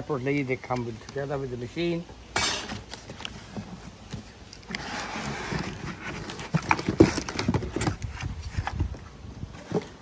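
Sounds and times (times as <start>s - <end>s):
cardboard scraping and rustling: 2.7s - 10.0s.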